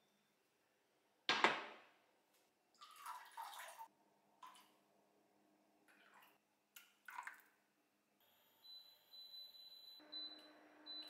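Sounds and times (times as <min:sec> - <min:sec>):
liquid pouring and splashing: 0:02.8 - 0:04.8, 0:05.9 - 0:07.6.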